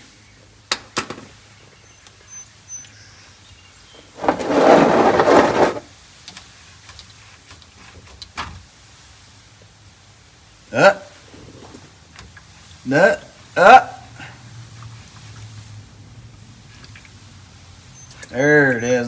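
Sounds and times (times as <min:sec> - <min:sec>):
drain pan scraping concrete: 0:04.0 - 0:05.9.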